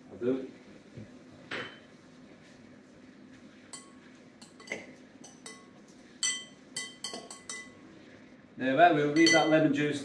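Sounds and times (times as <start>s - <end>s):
metal spoon clinking glass bowl: 3.7s - 7.8s, 9.2s - 9.6s.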